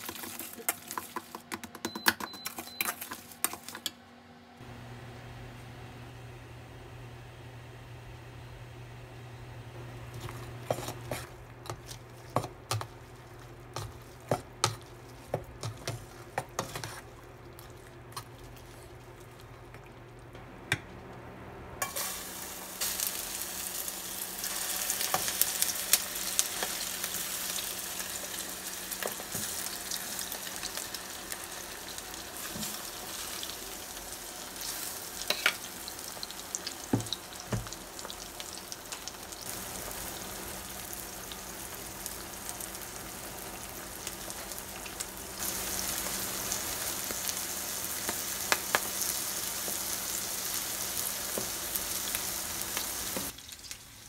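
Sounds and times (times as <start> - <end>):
oysters sizzling in frying pan: 21.8 - 54.0.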